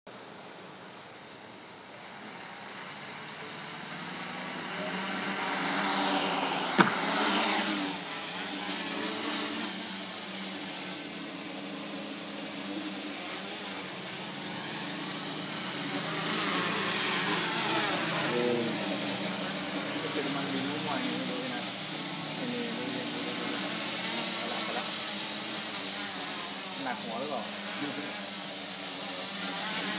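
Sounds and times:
quadcopter propellers buzzing: 0:01.2 - 0:29.9
sharp knock: 0:06.8 - 0:07.3.

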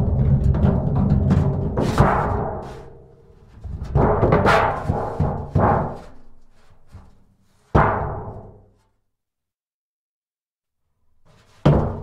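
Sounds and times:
steel drum banged: 0:00.0 - 0:06.1
scrapes on steel drum: 0:01.7 - 0:06.8.

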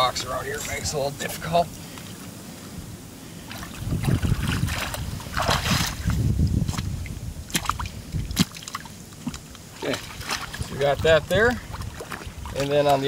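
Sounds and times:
boots sloshing through water: 0:03.4 - 0:13.0.

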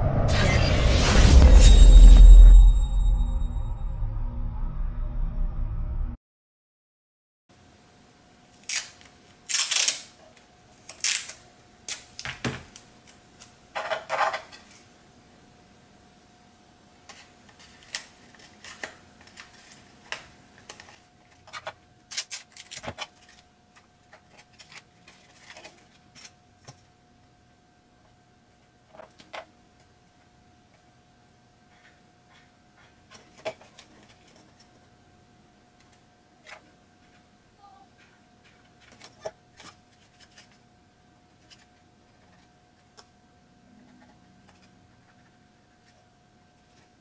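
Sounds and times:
masking tape rustling: 0:08.6 - 0:10.1.

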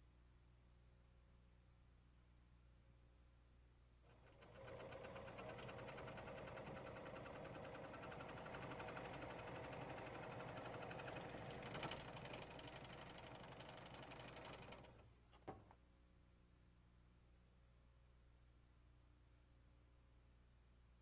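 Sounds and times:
serger sewing machine rattling: 0:04.1 - 0:15.0
sewing machine clack: 0:04.1 - 0:15.0.

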